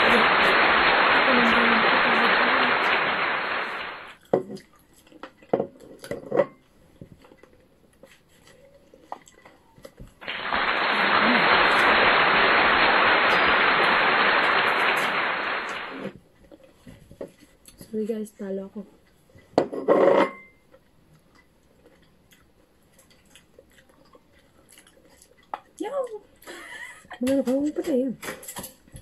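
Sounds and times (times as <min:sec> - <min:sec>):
loud steady hiss: 0:00.0 - 0:04.2, 0:10.2 - 0:16.2.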